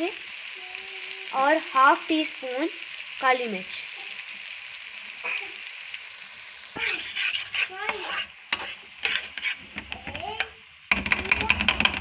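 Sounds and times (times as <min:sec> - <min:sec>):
lentils sizzling in oil: 0:00.0 - 0:12.0
spatula scraping a pan: 0:06.8 - 0:10.5.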